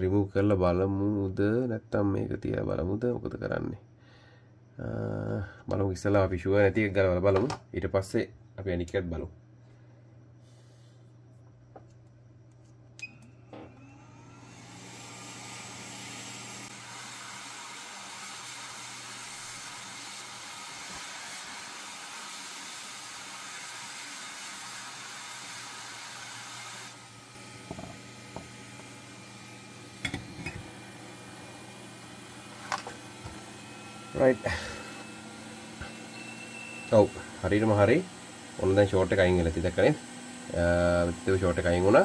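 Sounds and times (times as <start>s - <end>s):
hot air blowing: 13.6s - 42.0s.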